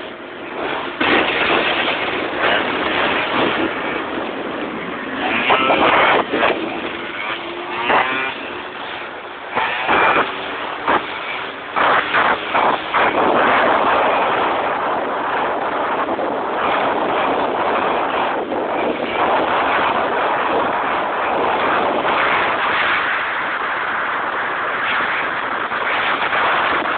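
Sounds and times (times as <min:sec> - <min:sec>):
wind on microphone: 0:00.0 - 0:26.9
scooter engine revving: 0:00.5 - 0:14.3.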